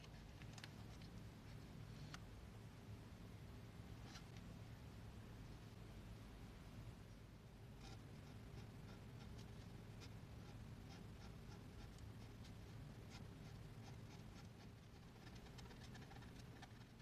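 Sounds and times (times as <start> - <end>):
low steady hum: 0.0 - 17.0
pen scratching on paper: 7.8 - 17.0.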